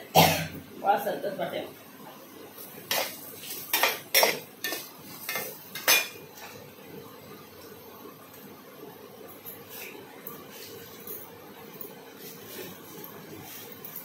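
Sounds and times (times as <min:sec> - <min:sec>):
steel dishes clinking: 0:02.9 - 0:06.2.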